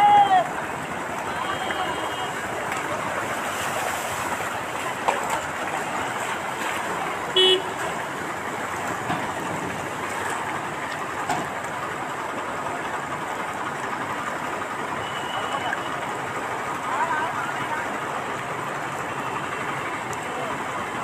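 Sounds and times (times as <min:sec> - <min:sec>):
floodwater rushing: 0:00.0 - 0:21.0
vehicle horn toot: 0:01.3 - 0:02.4, 0:07.3 - 0:07.8, 0:15.0 - 0:15.9.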